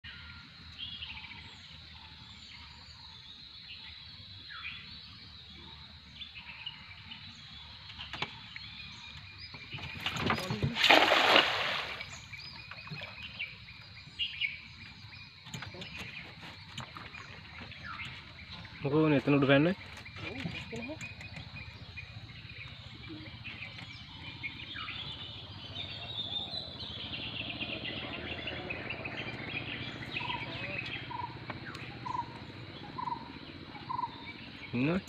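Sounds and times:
birds calling: 0:00.0 - 0:35.0
net splashing into water: 0:10.3 - 0:12.2.

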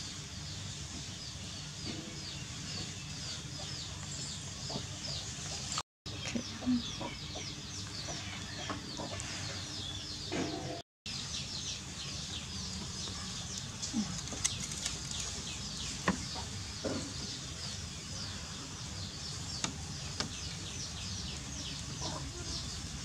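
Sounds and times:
chickens clucking: 0:01.8 - 0:10.8, 0:19.5 - 0:22.9.

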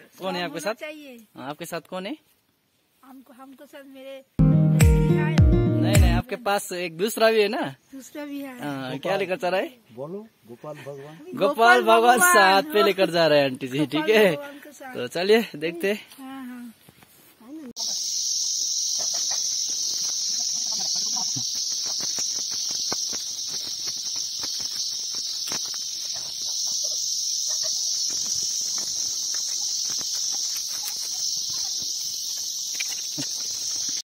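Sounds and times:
high-pitched insect chorus: 0:10.7 - 0:16.1, 0:17.8 - 0:34.0
faint footsteps on trail: 0:14.1 - 0:17.8, 0:19.0 - 0:34.0.

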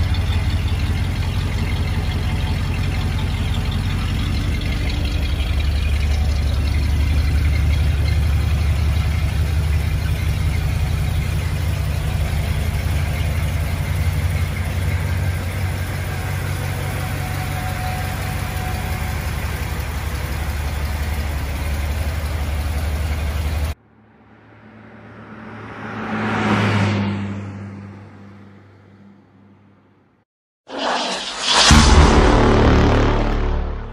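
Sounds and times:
car engine idling: 0:00.0 - 0:25.7
rising whoosh sound effect: 0:30.7 - 0:33.9.

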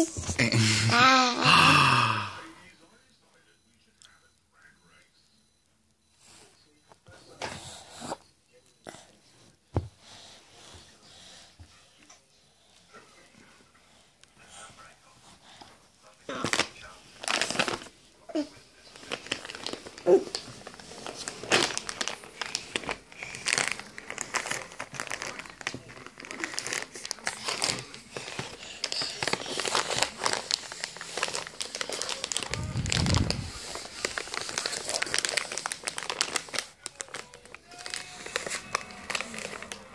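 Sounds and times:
child vocal sound: 0:00.0 - 0:02.3
rustling against phone microphone: 0:29.2 - 0:36.2.

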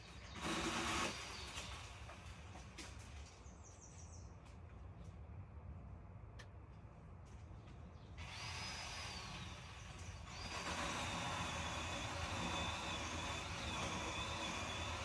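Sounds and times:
electric chainsaw whining: 0:00.3 - 0:01.7, 0:08.2 - 0:15.0.

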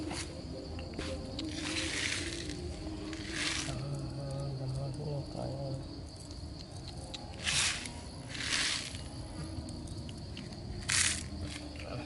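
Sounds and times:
grain pouring from plastic bottle: 0:07.4 - 0:09.1.

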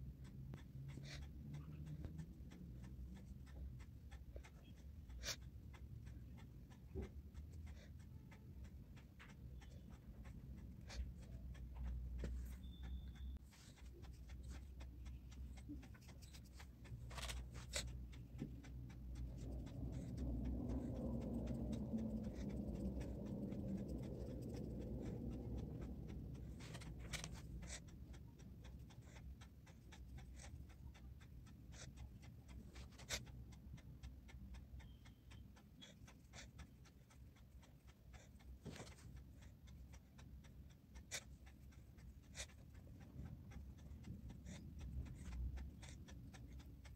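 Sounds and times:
dull low background sound: 0:00.0 - 0:46.9
paintbrush strokes on paper: 0:09.1 - 0:28.0.

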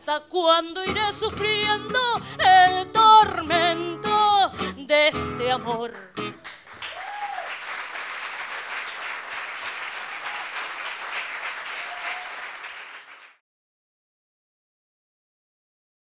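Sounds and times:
audience applauding: 0:06.3 - 0:13.4.

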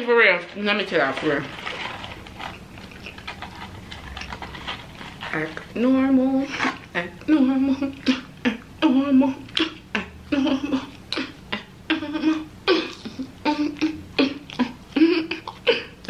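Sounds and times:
woman vocalising: 0:05.4 - 0:16.0.

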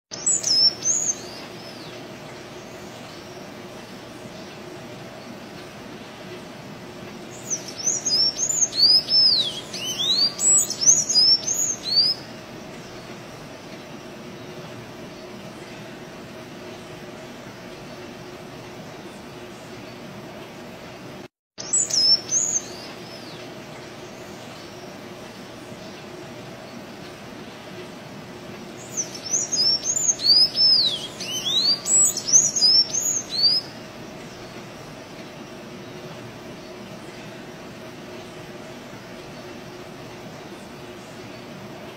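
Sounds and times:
steady hiss: 0:00.1 - 0:41.9.

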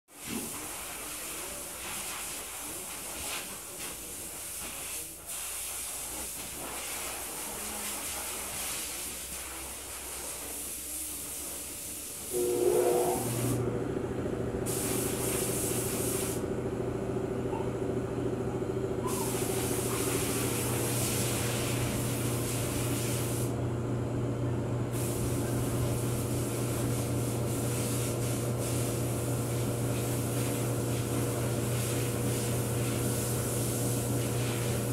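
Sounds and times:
machine humming: 0:12.3 - 0:27.7.

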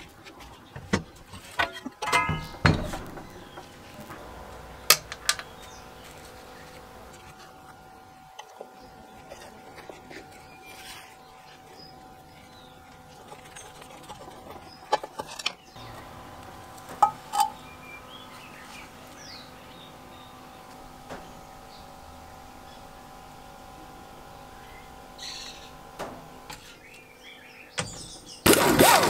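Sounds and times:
faint steady hum: 0:00.0 - 0:29.0
metal clicks and knocks: 0:00.8 - 0:03.7.

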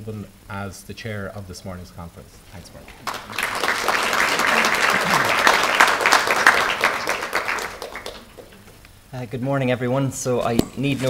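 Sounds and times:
audience applauding: 0:02.6 - 0:08.8.

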